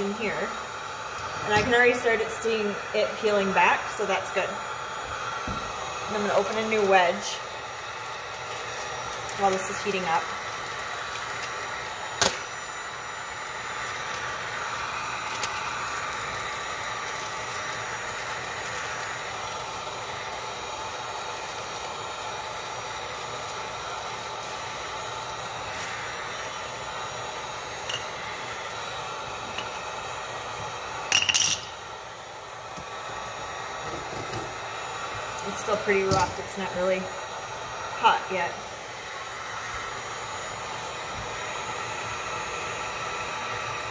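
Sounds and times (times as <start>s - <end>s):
heat gun blowing: 0.0s - 43.9s
clattering crackle: 31.0s - 31.8s.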